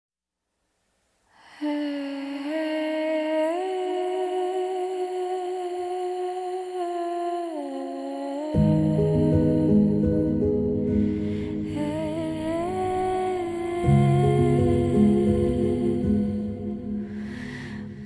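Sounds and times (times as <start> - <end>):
soft background music: 8.6 - 18.0.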